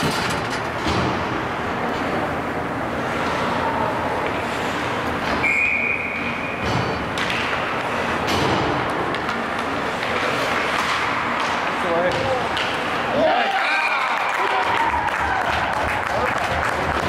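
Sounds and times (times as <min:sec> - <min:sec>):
ice hockey arena noise: 0:00.0 - 0:17.0
short high whistle: 0:05.4 - 0:06.5.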